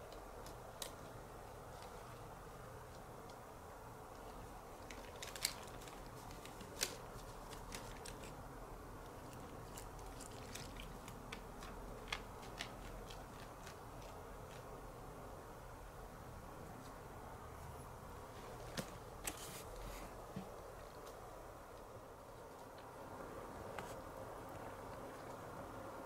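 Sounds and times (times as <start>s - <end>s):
plastic bag crinkling: 4.7s - 8.4s, 9.2s - 14.7s.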